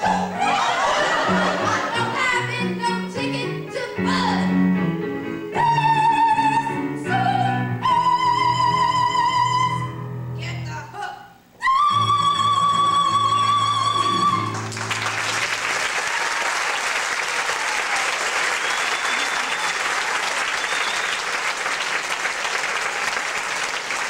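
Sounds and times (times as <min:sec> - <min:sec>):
audience applause: 0:14.5 - 0:24.0.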